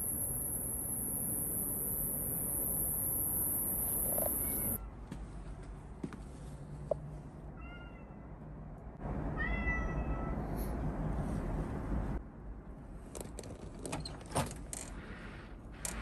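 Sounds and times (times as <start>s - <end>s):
cat meowing: 9.4s - 10.5s.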